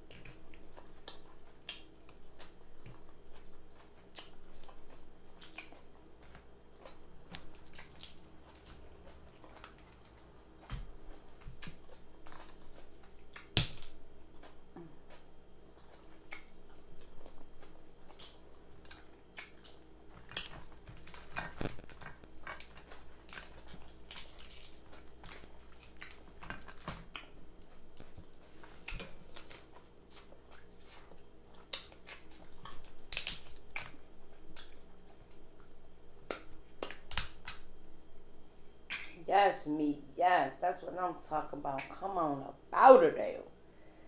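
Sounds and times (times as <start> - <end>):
chewing: 0.0 - 37.6
crab shells cracking: 11.5 - 14.5, 17.6 - 30.3, 31.6 - 34.8, 36.2 - 37.7.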